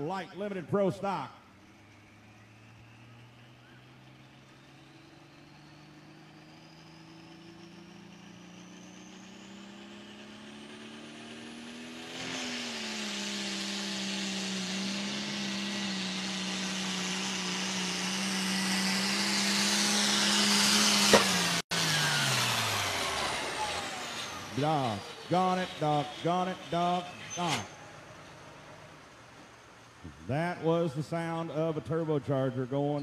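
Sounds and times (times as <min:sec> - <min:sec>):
high turbo whine: 0:00.0 - 0:33.0
tractor diesel engine revving: 0:00.0 - 0:33.0.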